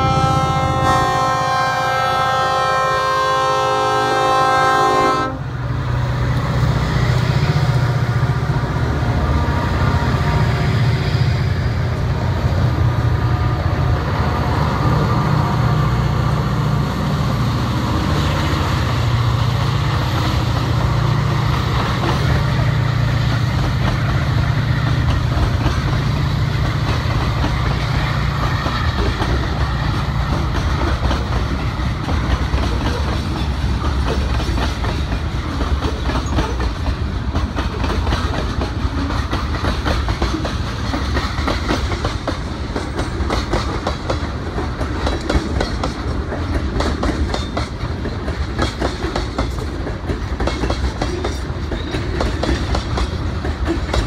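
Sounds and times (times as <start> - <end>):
locomotive horn chord: 0.0 - 5.6
locomotive engine drone: 0.0 - 39.4
train wheels clattering on rails: 4.9 - 54.0.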